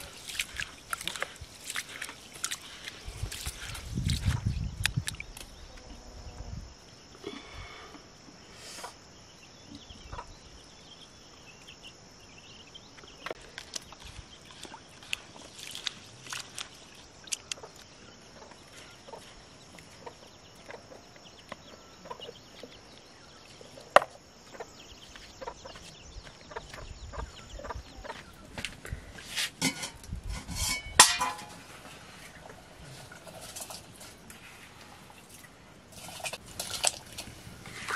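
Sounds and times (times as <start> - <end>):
chickens clucking: 25.4 - 25.8, 26.5 - 28.3.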